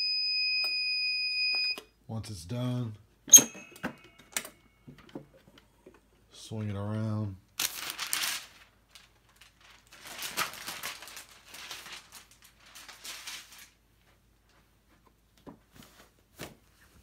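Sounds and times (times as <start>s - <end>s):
paper rustling: 7.6s - 15.0s.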